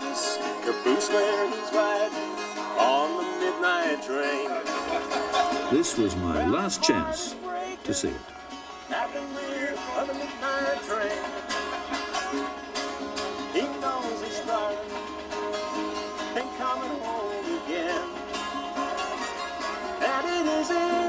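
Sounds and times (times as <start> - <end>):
country song singing: 0.0 - 21.0
plucked strings: 0.0 - 21.0.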